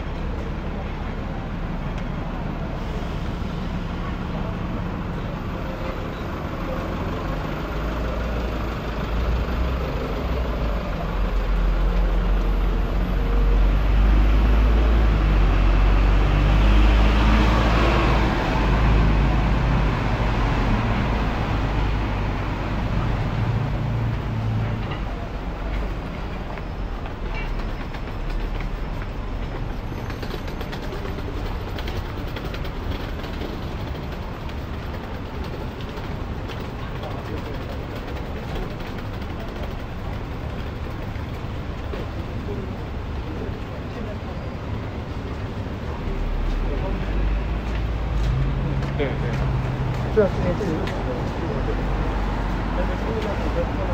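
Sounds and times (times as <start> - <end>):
street noise: 0.0 - 53.9
tram rumbling past on rails: 0.0 - 53.9.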